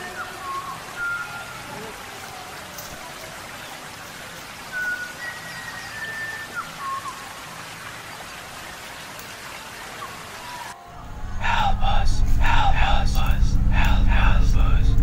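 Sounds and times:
whistled bird calls: 0:00.0 - 0:02.0, 0:04.6 - 0:07.6
steady rain-like hiss: 0:00.0 - 0:15.0.

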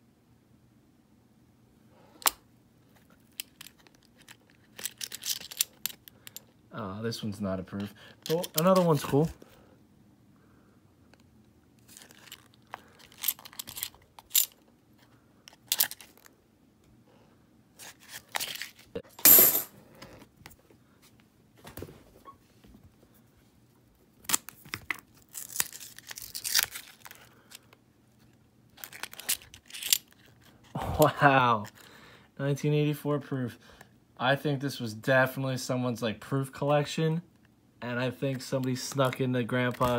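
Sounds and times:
coins clicking: 0:19.2 - 0:19.7
paper tearing and rustling: 0:24.3 - 0:27.2.

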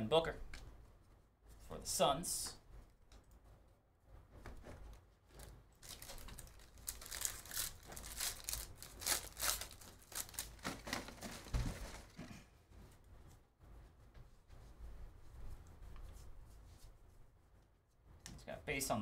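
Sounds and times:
card pack wrappers crinkling: 0:05.4 - 0:12.2.

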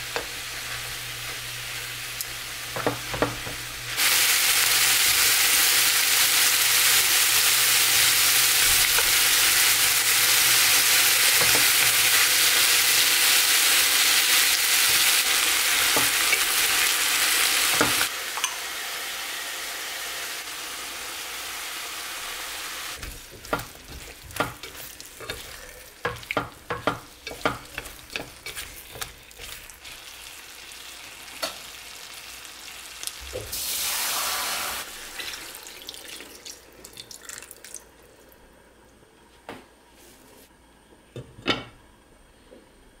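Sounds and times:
chicken sizzling in a pot: 0:00.0 - 0:36.8
chopsticks tapping a pot: 0:23.0 - 0:29.2.

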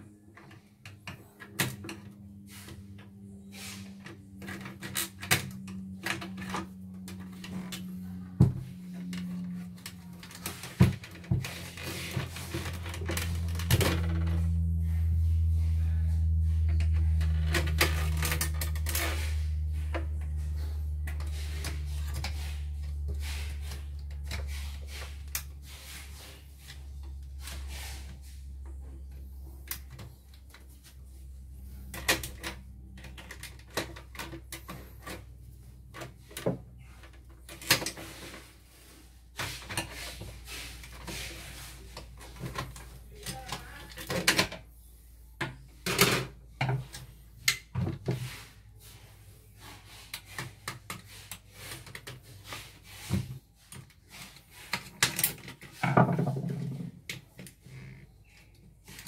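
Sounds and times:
deep steady hum: 0:00.0 - 0:37.6.

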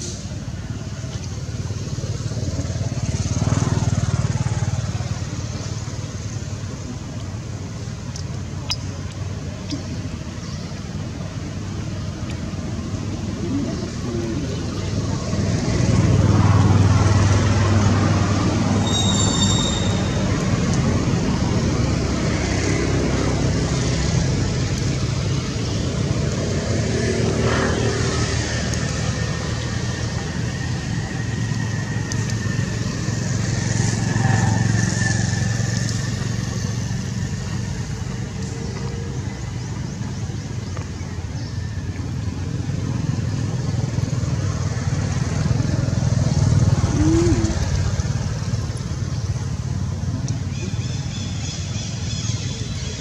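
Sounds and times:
motor traffic rumble: 0:00.0 - 0:53.0
motorbikes passing: 0:00.0 - 0:53.0.

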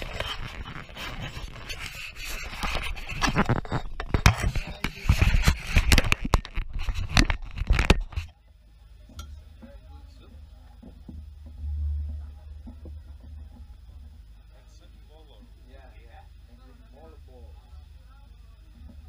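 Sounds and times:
hands rubbing over microphone: 0:00.0 - 0:08.3.

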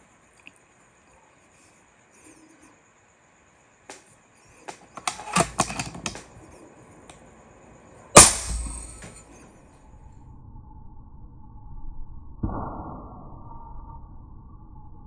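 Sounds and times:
clicks and knocks: 0:04.7 - 0:06.4
air rifle shot: 0:08.2 - 0:09.2.

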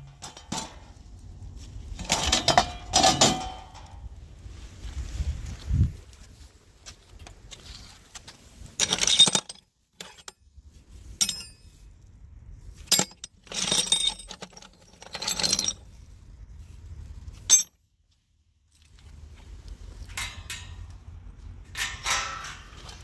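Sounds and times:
steel pieces clinking and scraping: 0:00.0 - 0:01.1, 0:01.9 - 0:04.0, 0:07.5 - 0:10.4, 0:11.0 - 0:11.9, 0:12.8 - 0:16.0, 0:17.3 - 0:17.8, 0:20.0 - 0:23.0.

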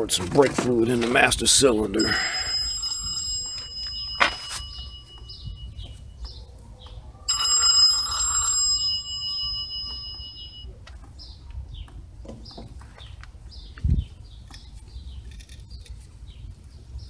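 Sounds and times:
metal tool ringing when struck: 0:03.3 - 0:06.1, 0:09.2 - 0:10.8.

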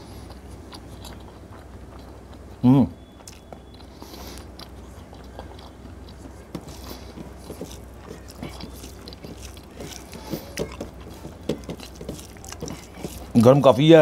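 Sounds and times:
person chewing: 0:00.0 - 0:13.8
fingers mixing rice on steel plate: 0:04.3 - 0:14.0.

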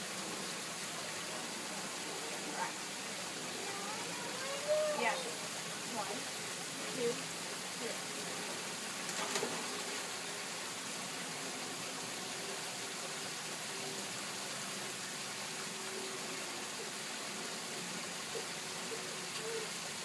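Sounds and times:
rush of falling water: 0:00.0 - 0:20.0
water splash: 0:09.0 - 0:10.3.

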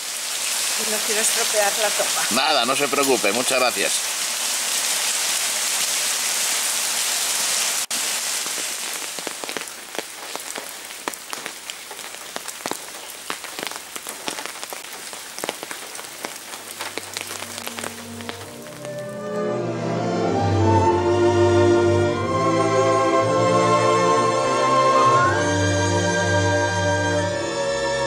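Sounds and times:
rain hissing on cobbles: 0:00.0 - 0:19.8
drops splashing into puddle: 0:07.9 - 0:19.2.

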